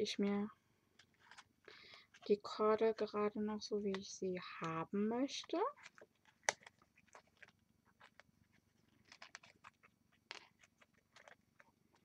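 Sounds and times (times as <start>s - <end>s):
paper card and cord rustling: 1.0s - 3.1s, 5.5s - 12.0s.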